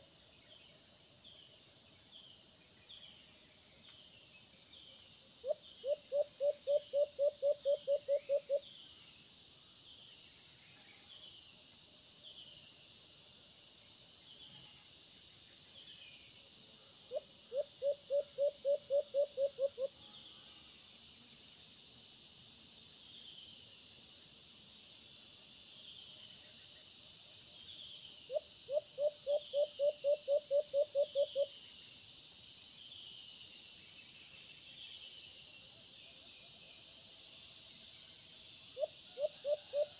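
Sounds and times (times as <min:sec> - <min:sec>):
high insect drone: 0:00.0 - 0:39.9
dove cooing: 0:05.4 - 0:08.6, 0:17.1 - 0:19.9, 0:28.3 - 0:31.5, 0:38.8 - 0:39.9.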